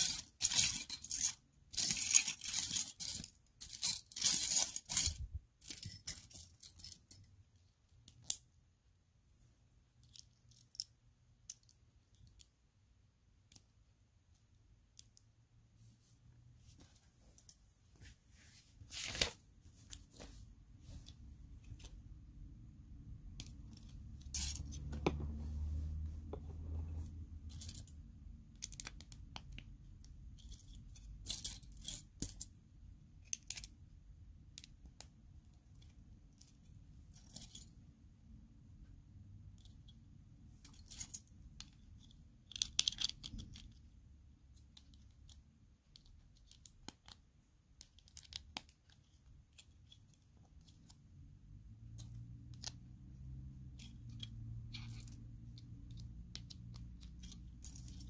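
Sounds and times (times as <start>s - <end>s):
plastic pieces clicking: 42.4s - 43.8s.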